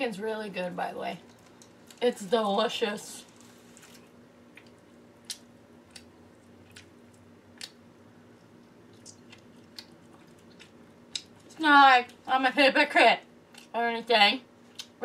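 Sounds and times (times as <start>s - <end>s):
chewing and mouth sounds: 3.7s - 7.8s, 8.4s - 11.6s.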